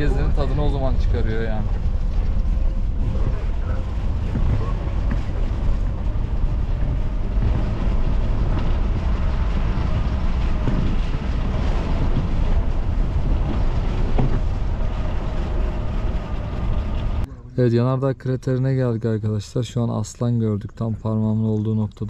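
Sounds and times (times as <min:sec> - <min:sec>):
wind buffeting microphone: 0:00.0 - 0:17.3
vehicle engine and road rumble: 0:00.0 - 0:22.0.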